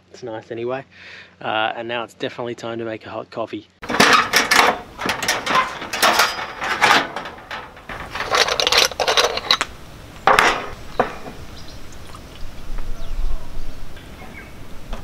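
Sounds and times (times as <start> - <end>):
sharp metal clank: 3.8 - 9.6
camp stove metal clattering: 3.8 - 11.4.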